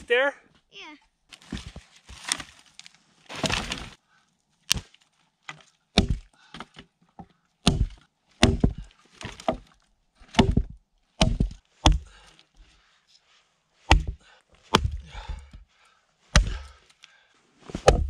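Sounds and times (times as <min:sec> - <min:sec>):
rustling scrapes of firewood: 0:01.3 - 0:04.0
wood cracking and knocking: 0:01.4 - 0:04.0, 0:04.7 - 0:06.9, 0:07.6 - 0:12.2, 0:13.9 - 0:15.6, 0:16.3 - 0:16.8, 0:17.8 - 0:18.0.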